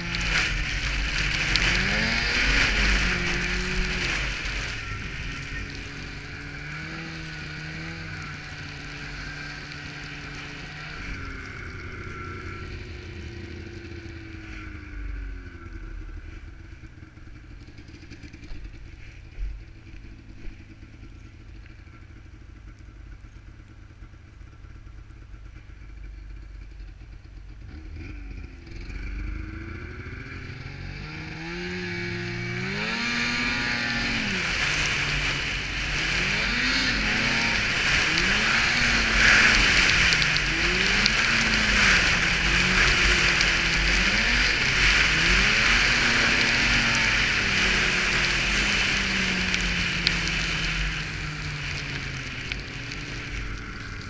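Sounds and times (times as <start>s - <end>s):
snowmobile engine: 0.0s - 26.0s, 26.6s - 54.0s
rushing noise: 31.9s - 54.0s
sharp tick: 36.7s - 44.7s.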